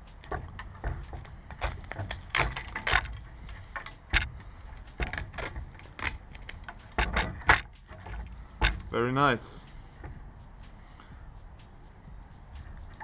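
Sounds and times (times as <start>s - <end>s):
duct tape ripping: 5.0s - 7.6s.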